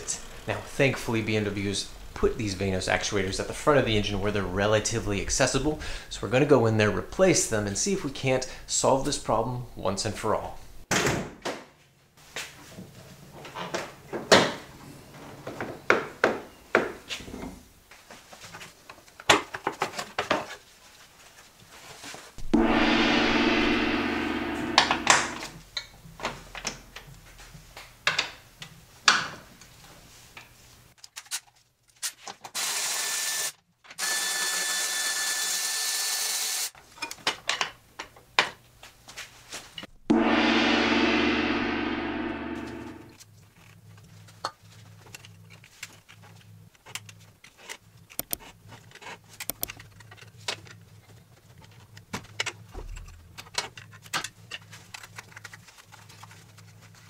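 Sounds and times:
loud metallic ringing: 0:22.4 - 0:25.6, 0:40.1 - 0:43.2.

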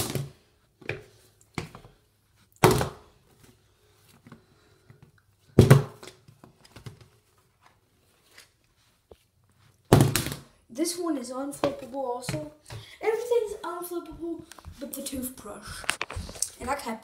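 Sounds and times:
plastic bottle thunking on hard surface: 0:05.6 - 0:06.1.

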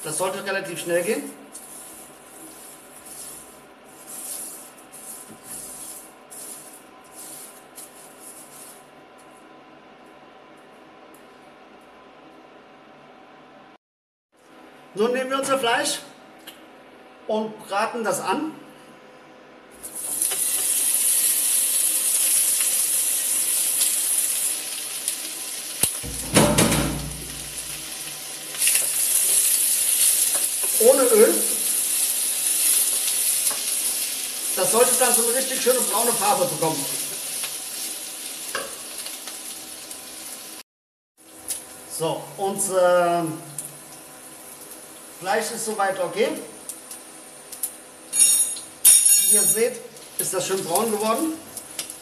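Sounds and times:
meat sizzling in a hot pot: 0:19.8 - 0:40.6, 0:43.4 - 0:45.5, 0:49.9 - 0:52.0.

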